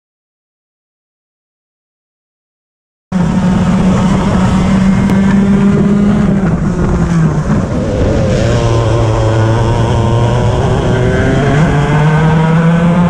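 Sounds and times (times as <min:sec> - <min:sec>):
kart engine at high revs: 0:03.2 - 0:13.0.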